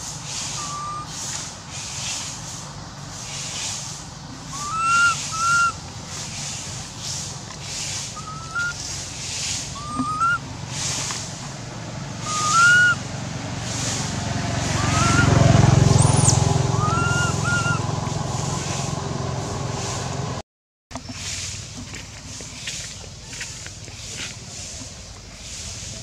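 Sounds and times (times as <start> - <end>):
steady pulsing hiss: 0.0 - 15.8, 21.1 - 26.0
baby monkey crying: 4.6 - 5.7, 9.8 - 10.4, 12.2 - 13.0, 14.8 - 15.4, 16.1 - 17.9.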